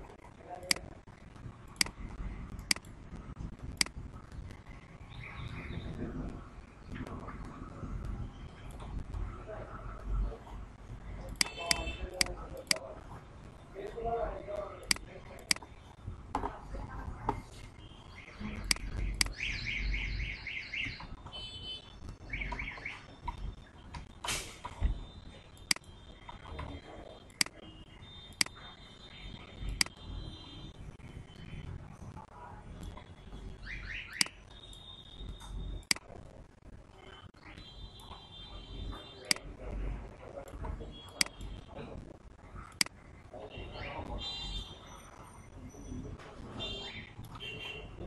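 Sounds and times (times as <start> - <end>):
low steady background noise: 0.0 - 48.0
sharp clicks: 0.6 - 5.8, 11.2 - 12.9, 14.8 - 15.8, 18.2 - 19.6, 25.3 - 27.6, 28.3 - 28.6, 29.5 - 30.0, 32.8 - 36.2, 39.2 - 39.5, 40.4 - 41.6, 42.6 - 43.0
electronic alarm chirps: 17.8 - 32.0, 32.8 - 36.0, 36.9 - 39.4, 43.5 - 47.7
computer mouse clicks: 42.6 - 43.0.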